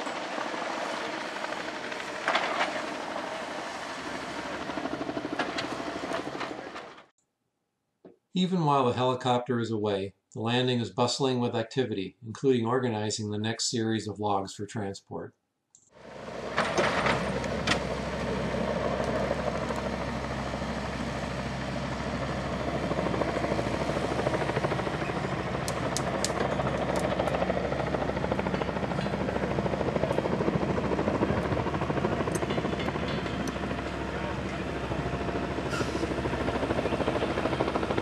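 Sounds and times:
excavator diesel engine running: 16.0 - 38.0.

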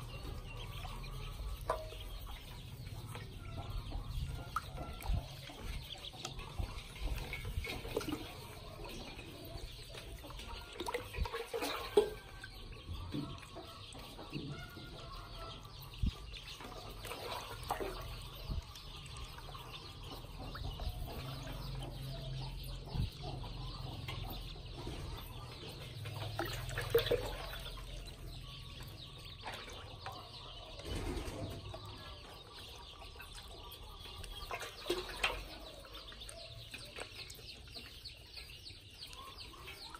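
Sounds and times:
ducklings peeping: 0.0 - 39.9
small water splashes: 4.4 - 14.1, 16.0 - 21.8, 26.1 - 30.4, 34.2 - 38.0.

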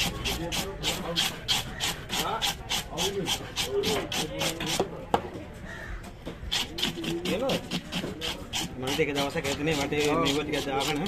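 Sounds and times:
knife scraping fish scales: 0.0 - 4.8, 6.5 - 11.0.

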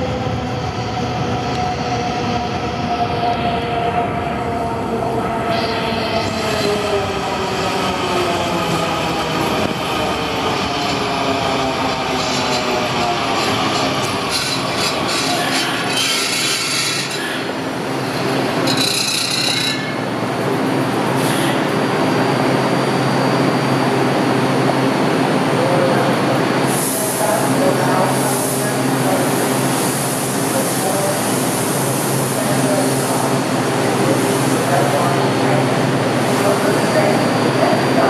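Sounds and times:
train wheels rumbling on rails: 6.1 - 22.7.

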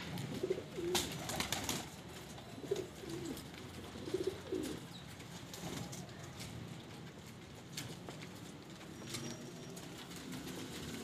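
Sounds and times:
pigeons cooing: 0.2 - 1.6, 2.3 - 4.9.

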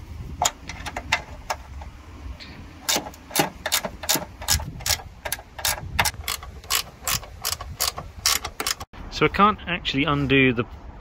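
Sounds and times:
ratcheting spanner clicking: 2.8 - 8.9.

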